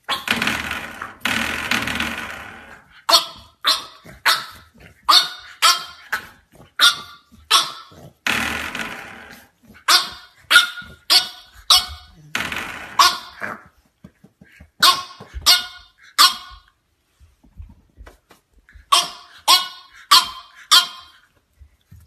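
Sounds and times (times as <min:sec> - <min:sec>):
puppy growly barks: 0:03.0 - 0:08.3, 0:09.4 - 0:13.7
puppy barking: 0:03.1 - 0:08.2, 0:09.8 - 0:12.2, 0:13.0 - 0:13.7, 0:14.8 - 0:16.7, 0:18.8 - 0:21.3.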